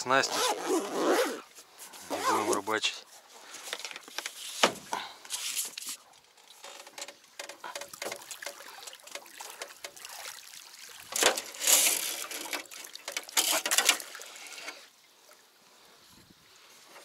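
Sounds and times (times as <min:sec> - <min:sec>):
water splashing and trickling: 0:01.4 - 0:17.0.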